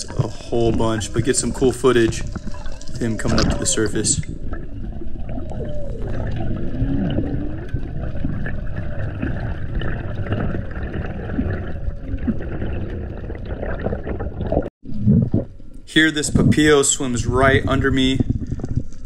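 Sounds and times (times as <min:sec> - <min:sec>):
underwater rush of water: 0:00.0 - 0:15.6.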